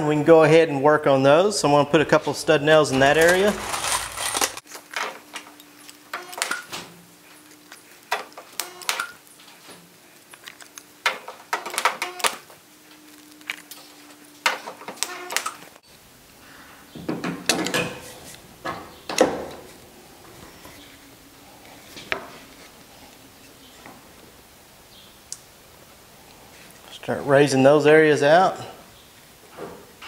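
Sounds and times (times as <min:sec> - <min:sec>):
stud welder snapping: 0:03.0 - 0:06.8, 0:08.0 - 0:09.2, 0:10.6 - 0:12.5, 0:14.4 - 0:15.8
faint steady hum: 0:05.2 - 0:30.0.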